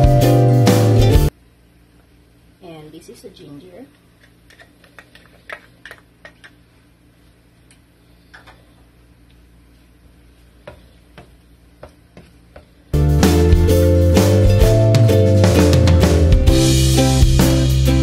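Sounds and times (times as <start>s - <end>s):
music with drums and guitar: 0.0s - 1.3s, 13.0s - 18.0s.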